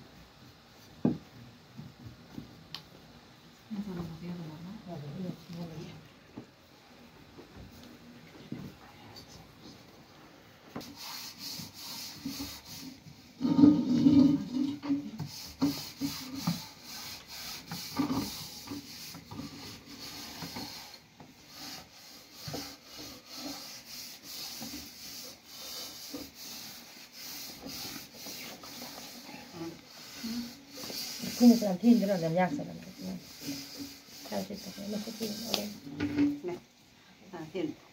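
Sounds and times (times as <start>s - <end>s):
rolling pins rubbing dough: 10.8s - 36.6s.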